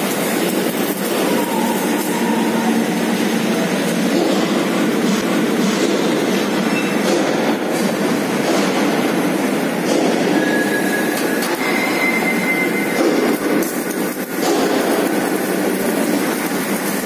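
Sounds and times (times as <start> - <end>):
machinery rumble: 0.0 - 17.0
steel-on-steel squeal: 10.3 - 13.4.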